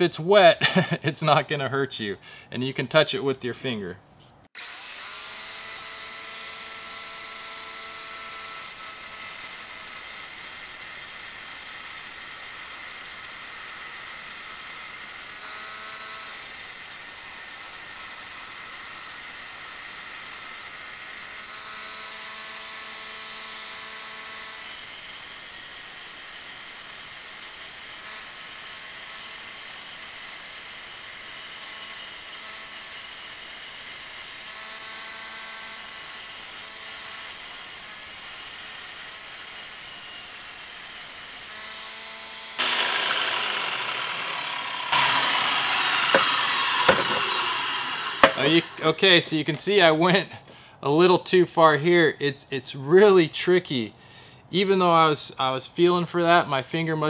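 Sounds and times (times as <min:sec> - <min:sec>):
wet tile saw whining: 0:04.6 - 0:50.2.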